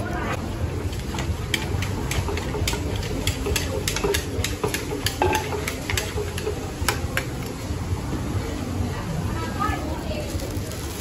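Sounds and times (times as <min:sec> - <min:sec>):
pestle pounding in mortar: 0:00.9 - 0:07.4.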